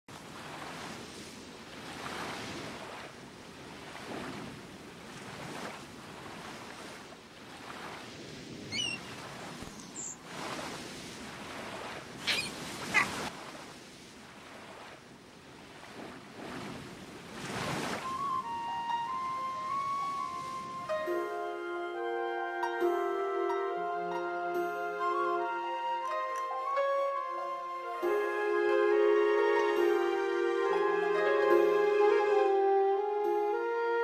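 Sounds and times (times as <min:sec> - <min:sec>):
sea waves washing: 0:00.1 - 0:21.7
wind: 0:00.1 - 0:34.0.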